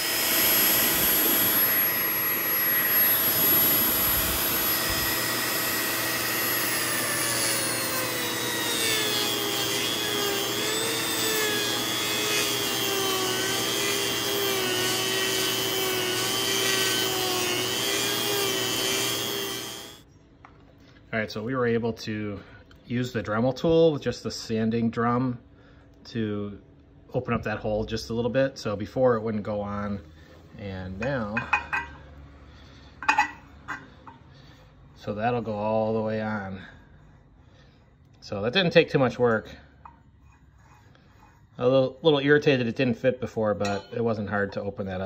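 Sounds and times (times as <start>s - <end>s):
rotary tool grinding metal: 0.0s - 20.0s, 39.8s - 42.6s.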